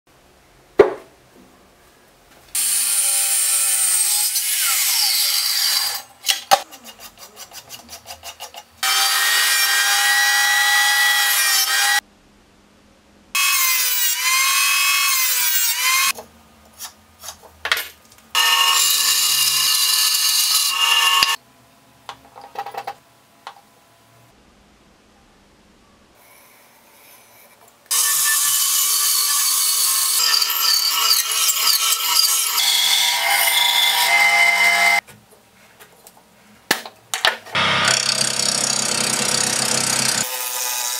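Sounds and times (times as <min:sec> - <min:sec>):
power tool cutting wood: 0:02.6 - 0:06.0, 0:08.8 - 0:12.0, 0:18.4 - 0:21.4, 0:27.9 - 0:35.0, 0:37.6 - 0:40.9.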